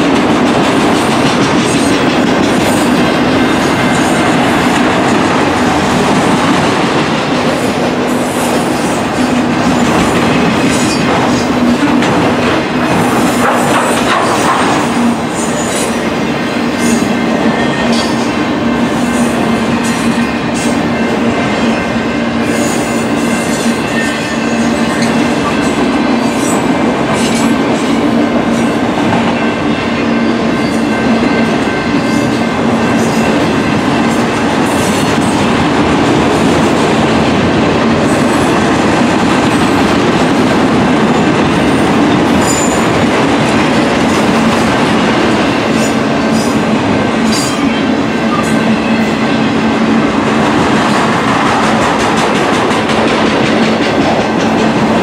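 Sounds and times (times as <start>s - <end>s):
steel wheels rumbling on rails: 0.0s - 55.0s
wheels clicking over rail joints: 9.8s - 15.8s.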